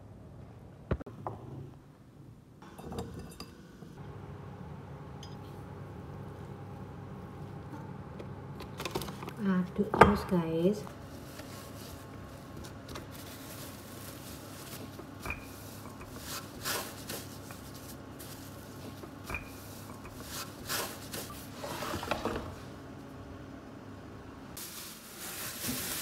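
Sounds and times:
plastic sheet rustling: 11.0 - 19.0, 24.6 - 26.0.

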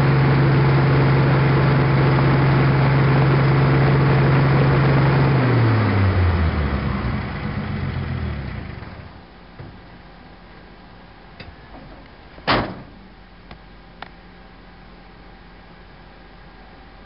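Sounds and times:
truck engine running: 0.0 - 10.0.

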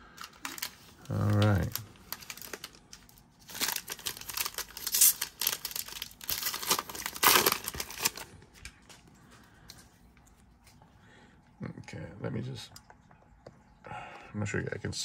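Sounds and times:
foil wrapper crinkling and tearing: 0.0 - 9.0.

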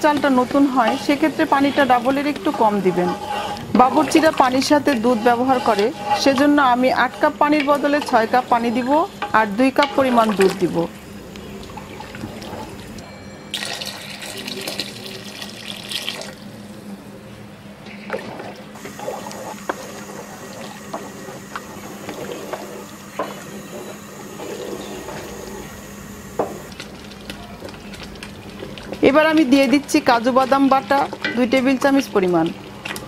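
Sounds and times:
liquid sloshing in a pot: 0.2 - 9.0, 17.9 - 33.0.

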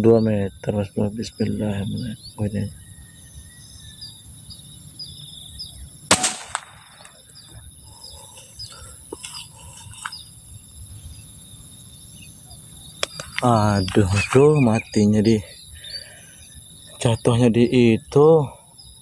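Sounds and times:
bird chirps: 0.0 - 19.0
crickets and insects trilling: 0.0 - 19.0
air rifle shot: 6.1 - 7.2.

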